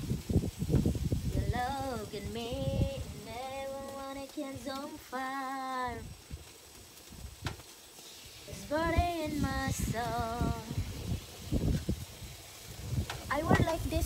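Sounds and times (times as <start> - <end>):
wind rumble on microphone: 0.0 - 7.7, 8.3 - 14.0
woman singing slow melody: 1.3 - 6.2, 8.4 - 11.0.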